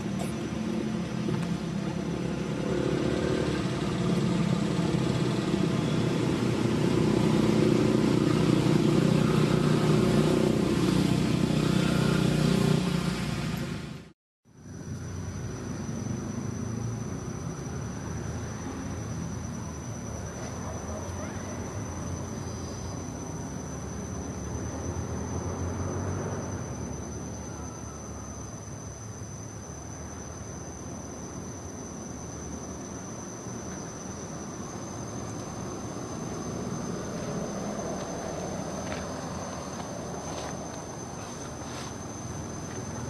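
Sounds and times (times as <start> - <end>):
insect chorus drone: 0.0 - 43.0.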